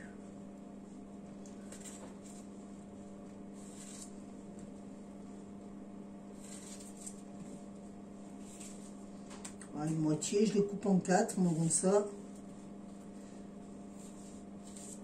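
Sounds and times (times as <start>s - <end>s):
low electrical hum: 0.0s - 15.0s
knife cutting apple on plastic board: 13.8s - 15.0s.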